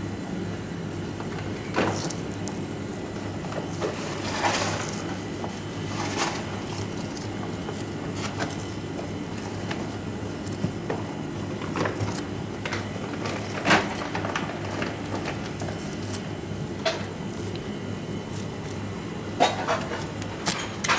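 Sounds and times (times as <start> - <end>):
steady low hum: 0.0 - 20.9.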